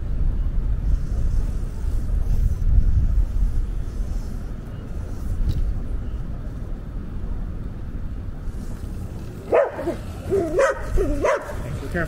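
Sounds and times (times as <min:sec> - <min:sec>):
steady low rumble: 0:00.0 - 0:12.0
dog barking: 0:09.5 - 0:11.6.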